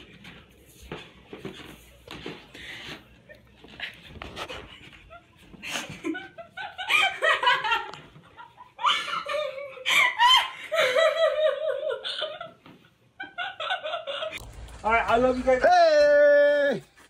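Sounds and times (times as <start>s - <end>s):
people laughing hard: 3.9s - 14.4s.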